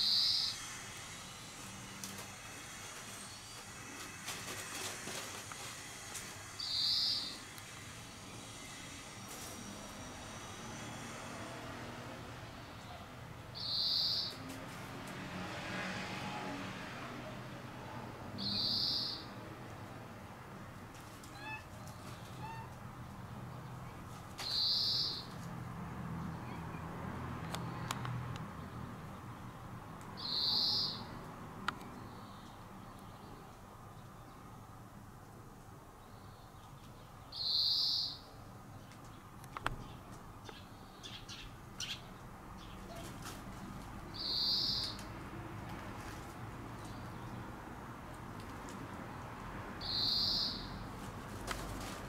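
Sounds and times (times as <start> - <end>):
high buzzy bird calls: 0.0 - 0.8, 6.6 - 8.6, 12.8 - 14.4, 18.4 - 19.4, 24.4 - 25.4, 30.2 - 31.2, 37.3 - 38.4, 44.1 - 45.1, 49.8 - 50.8
harsh hissing buzz: 0.0 - 12.7
rustles in pine needles: 1.6 - 7.5.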